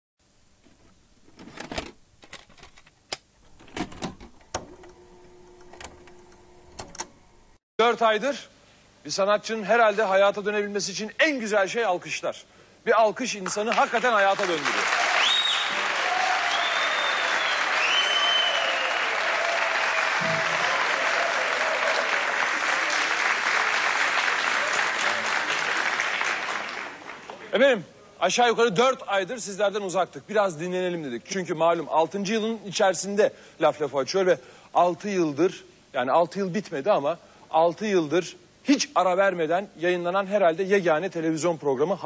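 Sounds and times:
mechanical clicks and clunks: 0:00.6 - 0:07.5
low hum: 0:03.4 - 0:07.6
audience applauding: 0:13.4 - 0:27.5.

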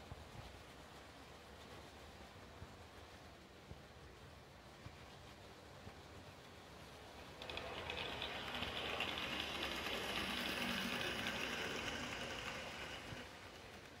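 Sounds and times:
model train motor humming: 0:07.2 - 0:14.0
wheels clattering over rail joints: 0:07.2 - 0:14.0.

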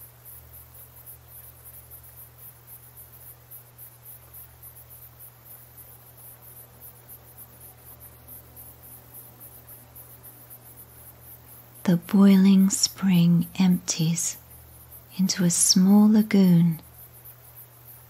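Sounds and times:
crickets chirping: 0:00.0 - 0:18.0
low steady hum: 0:07.2 - 0:17.6.

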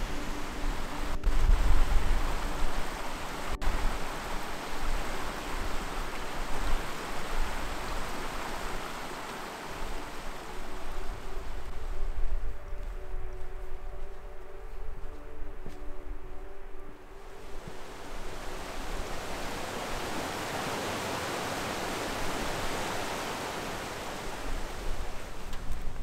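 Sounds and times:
stream splashing over rocks: 0:00.7 - 0:11.6, 0:17.6 - 0:25.5.

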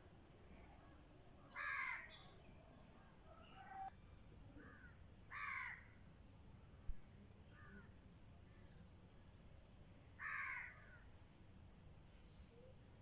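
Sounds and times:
crow cawing: 0:01.6 - 0:02.1, 0:04.6 - 0:05.9, 0:10.2 - 0:11.0.

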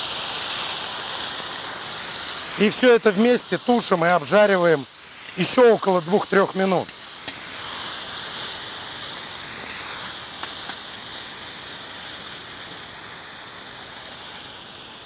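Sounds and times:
food sizzling and boiling: 0:00.0 - 0:15.0.

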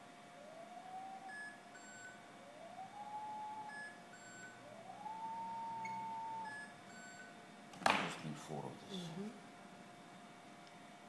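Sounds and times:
rising electronic tone: 0:00.4 - 0:06.6.

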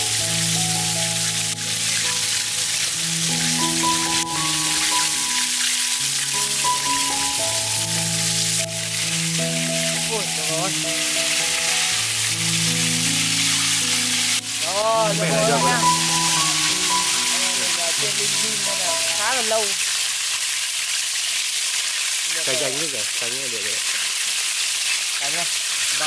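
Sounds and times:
background music with held notes: 0:00.0 - 0:19.9
oil sizzling while deep-frying: 0:00.0 - 0:26.0.

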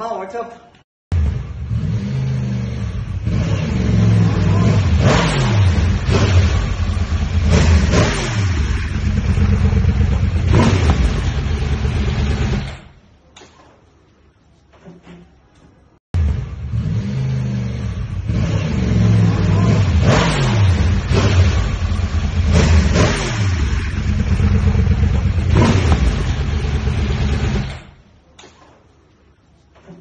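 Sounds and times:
motorcycle engine revving: 0:01.1 - 0:12.9, 0:16.2 - 0:28.0.

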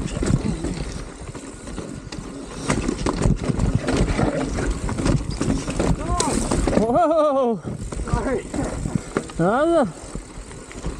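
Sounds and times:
tyres crunching over dirt and rock: 0:00.0 - 0:07.0
wind rumbling on microphone: 0:00.0 - 0:07.0, 0:07.6 - 0:10.9
bike clattering and rattling: 0:00.0 - 0:10.9.

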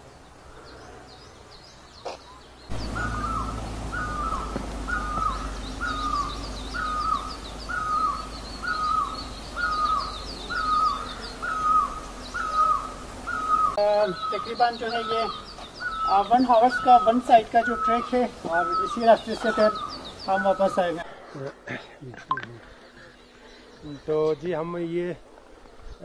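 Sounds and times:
small birds chirping: 0:00.0 - 0:26.0
steady low rumble: 0:02.7 - 0:10.5
bird repeating short call: 0:02.7 - 0:20.9.

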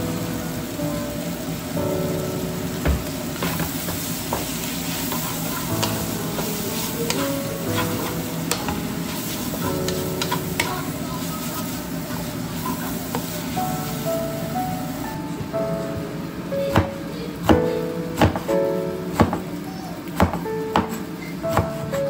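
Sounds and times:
meat sizzling in a wok: 0:00.0 - 0:15.2
spatula clicking and scraping pan: 0:03.4 - 0:10.8.

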